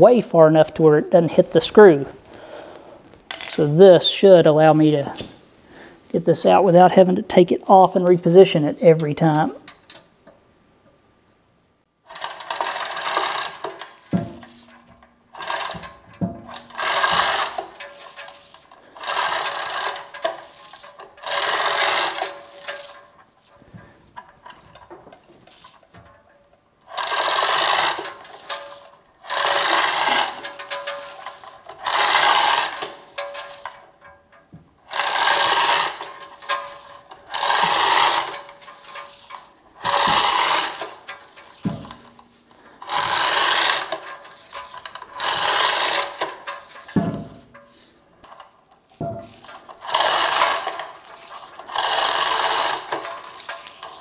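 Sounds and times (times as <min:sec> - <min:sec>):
chain hoist rattling: 0:12.1 - 0:54.0.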